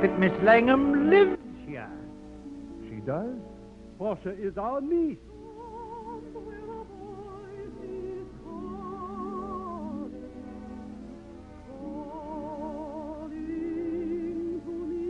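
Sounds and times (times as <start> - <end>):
soprano singing operatically: 0.0 - 1.5, 5.3 - 15.0.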